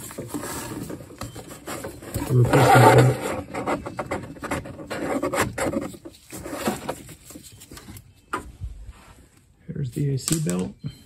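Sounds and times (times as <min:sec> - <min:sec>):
rubber belt scraping against fan: 0:01.7 - 0:07.0.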